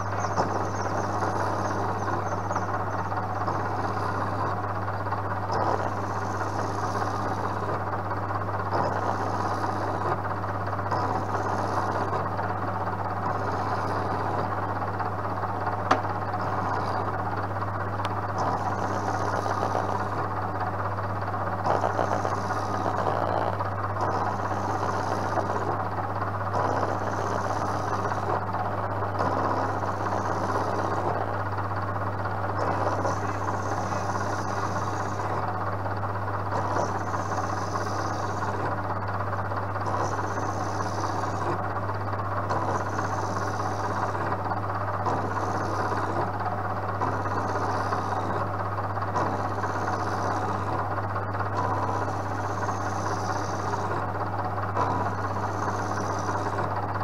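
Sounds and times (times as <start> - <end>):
milling machine motor hum: 0.0 - 57.0
cutting hiss: 5.5 - 7.9, 8.7 - 17.4, 18.0 - 20.4, 21.3 - 31.5, 32.6 - 35.5, 36.5 - 38.7, 39.8 - 41.6, 42.4 - 46.3, 47.0 - 48.5, 49.2 - 50.9, 51.6 - 54.1, 54.8 - 56.7.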